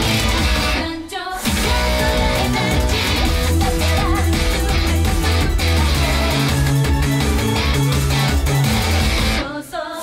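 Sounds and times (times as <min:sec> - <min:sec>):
band with heavy bass and beat: 0:00.0 - 0:00.8, 0:01.4 - 0:09.4
electric guitar played with a pick: 0:01.7 - 0:09.4.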